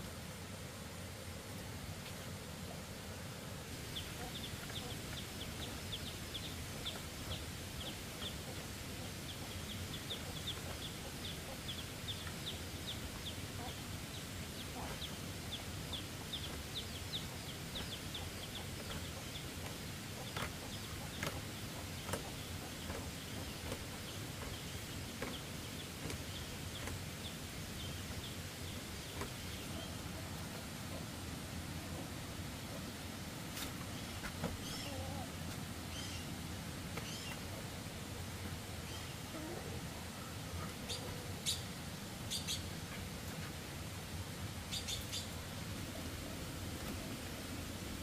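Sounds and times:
small bird chirping: 3.9s - 30.0s, 44.7s - 45.4s.

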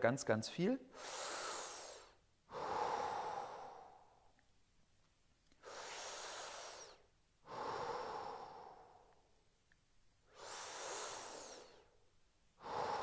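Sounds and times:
man breathing deeply: 0.9s - 4.3s, 5.6s - 9.4s, 10.2s - 12.0s, 12.6s - 13.0s.

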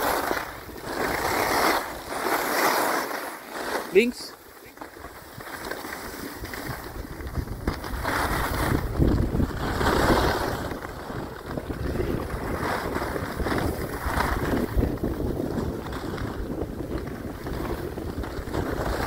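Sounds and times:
skis scraping on snow: 0.0s - 19.0s
wind on microphone: 5.1s - 19.0s.

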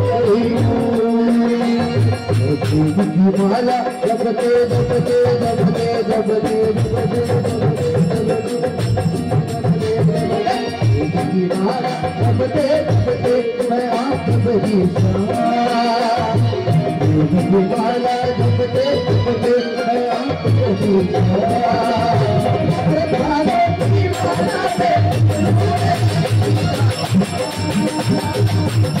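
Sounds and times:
harmonium melody: 0.0s - 29.0s
keyboard: 0.0s - 29.0s
electronic drum beat: 20.4s - 29.0s.

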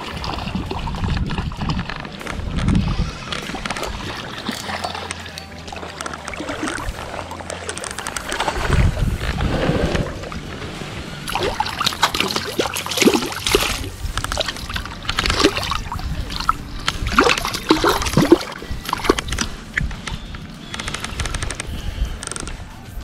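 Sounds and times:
fish splashing in water: 3.0s - 10.4s, 11.0s - 19.5s.

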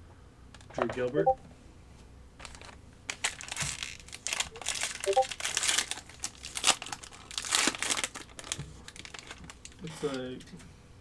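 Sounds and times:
plastic wrapper crinkling: 2.4s - 9.9s.

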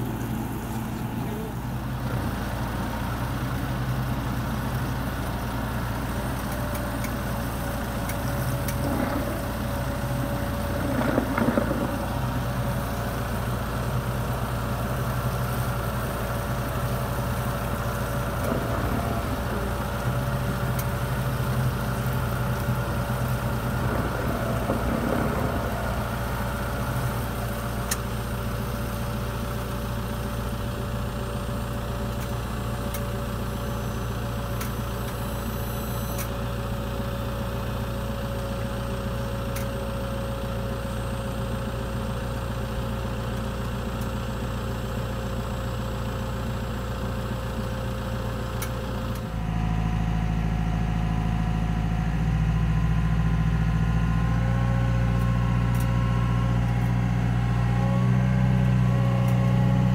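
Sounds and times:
outboard motors idling: 0.0s - 36.0s
tractor engine idling: 0.0s - 52.3s
steady thin whine: 8.4s - 13.7s, 16.9s - 29.2s.

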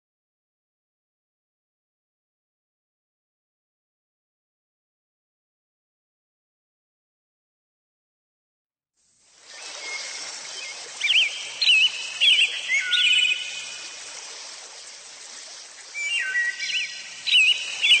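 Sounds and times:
steady hiss: 9.0s - 18.0s
songbird warbling chirps: 9.5s - 14.3s, 15.3s - 18.0s.

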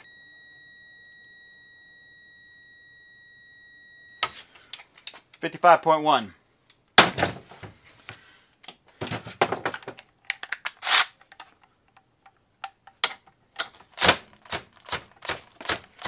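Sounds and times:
metal clicks and knocks: 9.1s - 16.0s.

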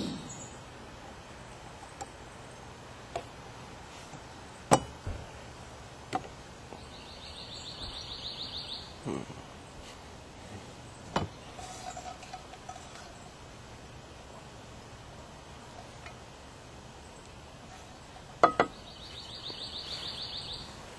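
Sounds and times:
camp cookware knocking and clinking: 4.7s - 5.0s, 11.1s - 13.2s, 18.2s - 18.8s.

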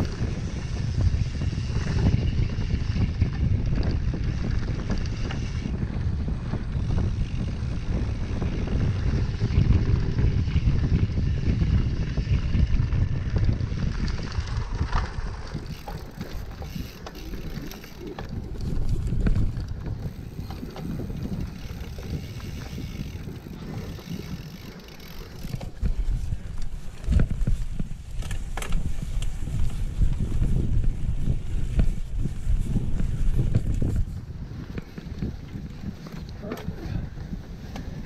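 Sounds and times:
bike rattling clicks: 0.0s - 38.0s
wind buffeting microphone: 0.0s - 38.0s
tyres rolling on dirt: 12.9s - 30.4s.

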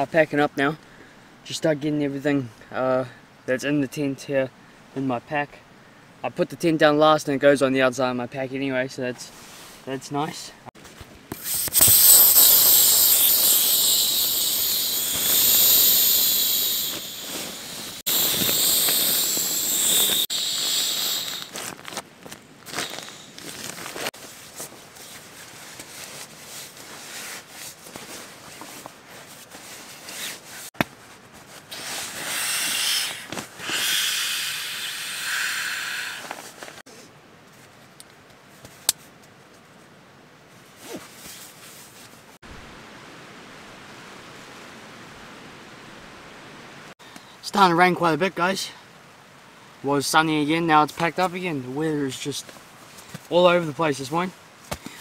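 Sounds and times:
air hissing out of valve: 11.3s - 21.6s, 31.7s - 36.5s.

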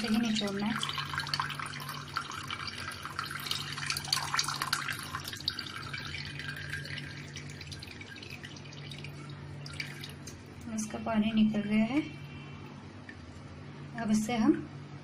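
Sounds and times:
whey dripping into a pot: 0.0s - 10.9s.

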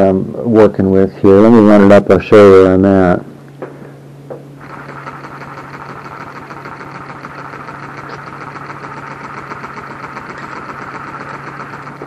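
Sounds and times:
air engine rapid mechanical chatter: 4.6s - 12.0s.

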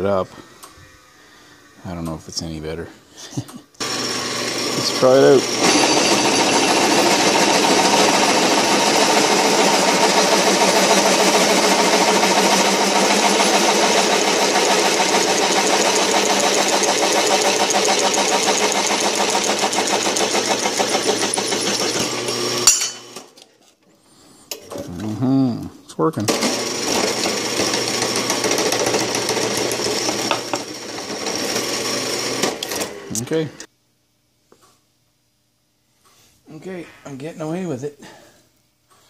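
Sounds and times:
drill press drilling metal: 3.8s - 23.0s, 26.3s - 33.0s.

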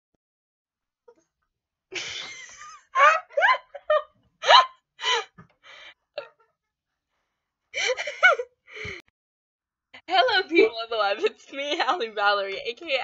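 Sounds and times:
girl laughing high-pitched: 2.0s - 5.2s, 7.8s - 8.5s.

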